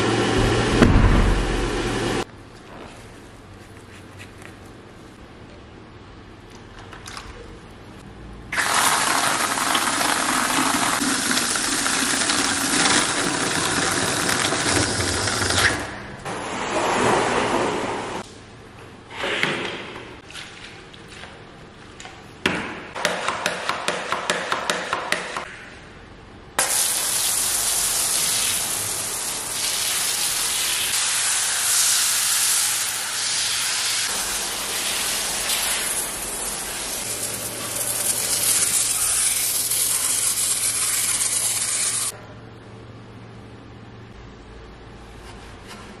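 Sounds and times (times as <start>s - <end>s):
foam spraying hiss: 26.6s - 42.1s.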